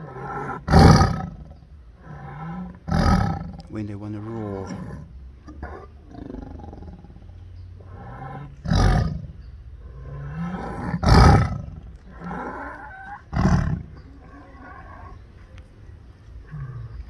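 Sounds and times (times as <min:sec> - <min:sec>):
tiger roaring: 0:00.0 - 0:15.2.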